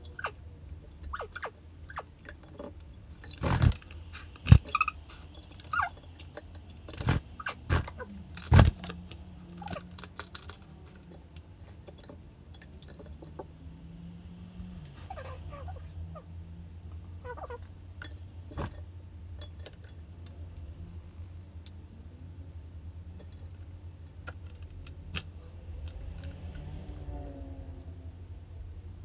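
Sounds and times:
bird squeaky chirps: 0.0 - 2.4, 3.2 - 8.1, 14.7 - 16.2, 17.2 - 17.6.

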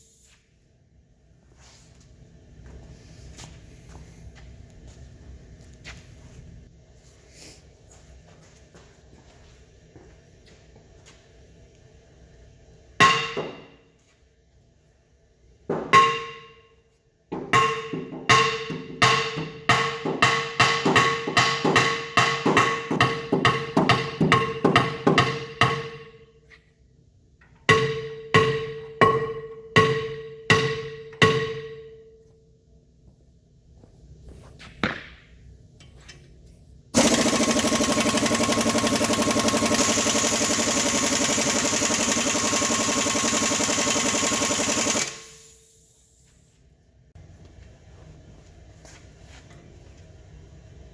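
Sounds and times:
hammer ringing on metal disc: 13.0 - 13.8, 15.9 - 16.8, 17.5 - 26.2, 27.7 - 32.2
air impact wrench running: 36.9 - 46.4.

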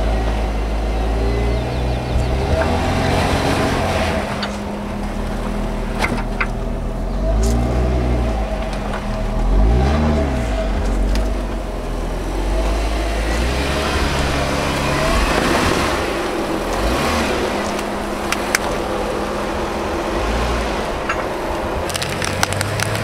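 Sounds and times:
off-road vehicle engine revving: 0.0 - 23.0.

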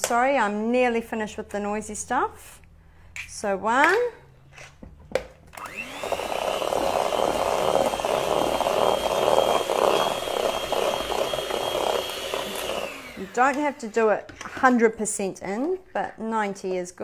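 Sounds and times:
electric hand mixer whining: 5.5 - 14.2
beaters churning batter: 5.7 - 13.8.

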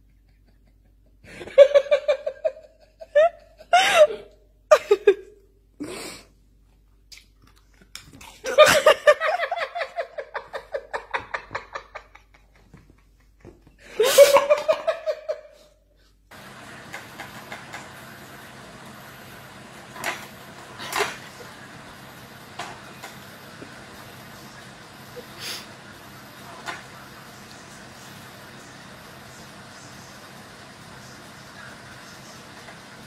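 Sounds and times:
person laughing hard: 0.0 - 5.4, 8.4 - 15.7
faint room hum: 0.0 - 33.0.

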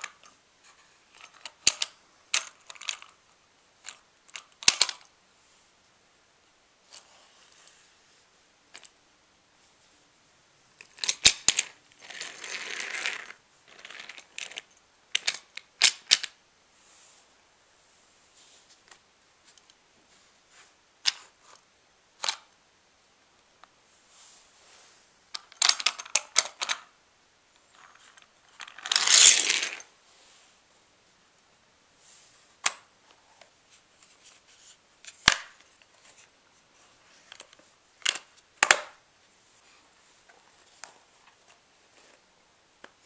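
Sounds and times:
toy playset clicking and scraping: 0.0 - 3.2, 3.8 - 5.1, 10.8 - 16.4, 25.4 - 26.9, 27.8 - 29.9.

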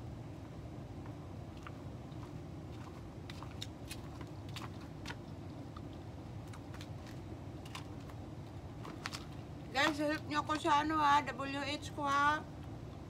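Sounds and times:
low hum: 0.0 - 13.0
footsteps: 1.5 - 5.2.

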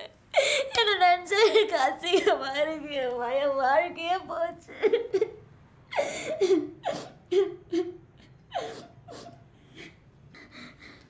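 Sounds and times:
woman speaking: 0.8 - 4.9
woman laughing softly: 5.9 - 11.0.

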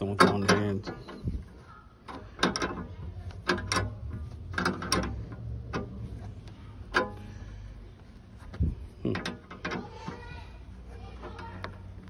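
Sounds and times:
ratcheting wrench clicking: 2.1 - 6.0.

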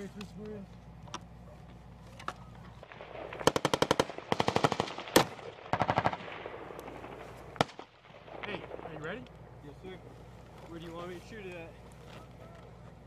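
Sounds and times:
automatic weapon bursts: 3.1 - 7.9.

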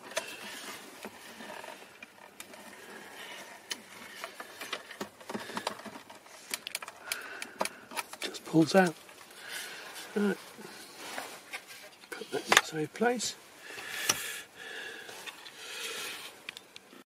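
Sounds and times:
plastic clicks and scrapes: 0.0 - 9.2.

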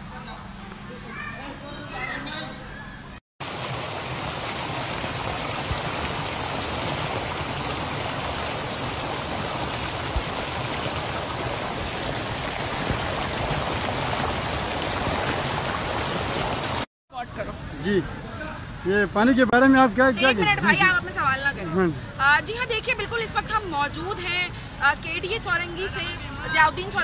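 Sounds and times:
floodwater rushing: 3.4 - 16.9.

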